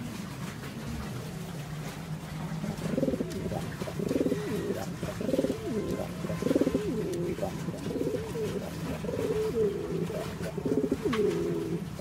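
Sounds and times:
pigeon cooing: 2.4s - 12.0s.

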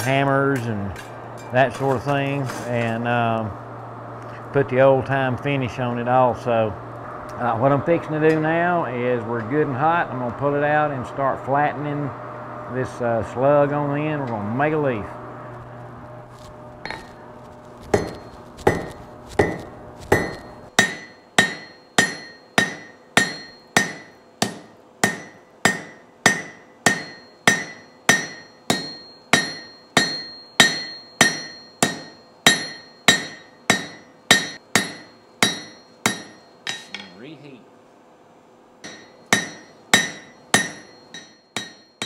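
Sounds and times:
hammer striking steel on anvil: 16.9s - 17.2s, 17.9s - 37.2s, 38.8s - 42.0s.

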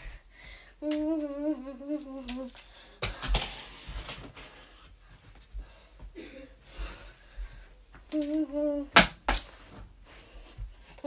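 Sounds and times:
plastic glow sticks clacking: 0.8s - 4.2s, 8.1s - 8.5s.

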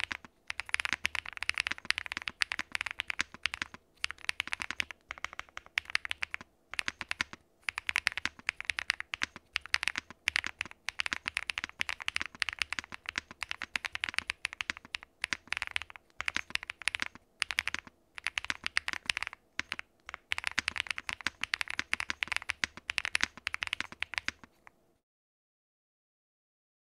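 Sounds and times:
mechanical keyboard typing: 0.0s - 24.6s.

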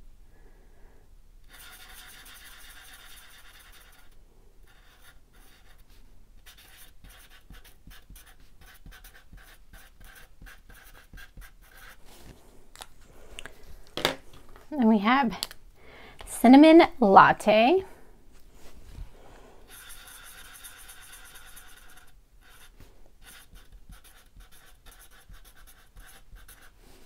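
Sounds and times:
marker scratching on paper: 1.5s - 12.3s, 19.7s - 26.8s.

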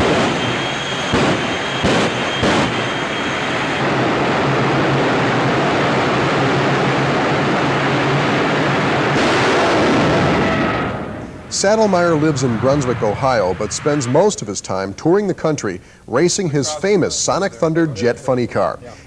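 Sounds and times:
sharp bang: 0.0s - 5.0s, 8.0s - 14.9s
jet engine roaring: 0.0s - 15.0s.

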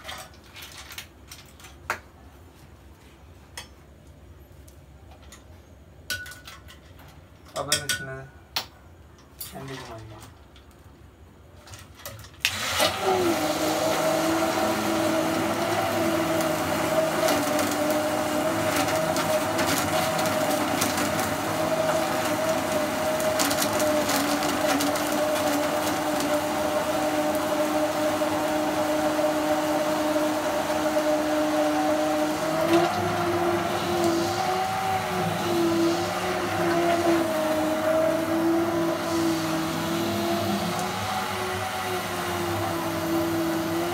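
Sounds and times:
immersion blender motor whining: 12.5s - 43.9s.

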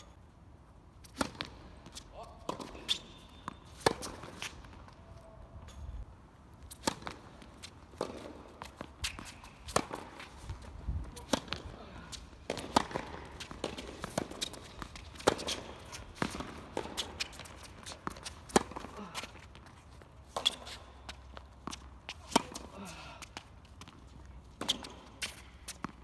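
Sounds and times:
tennis ball struck by rackets: 1.1s - 1.6s, 2.5s - 4.6s, 6.7s - 10.3s, 12.4s - 18.9s
ball bouncing on hard court: 12.5s - 18.9s.

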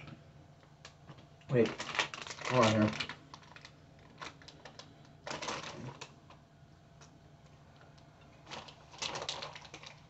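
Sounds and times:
candy wrapper crinkling: 0.8s - 6.4s, 8.4s - 10.0s.

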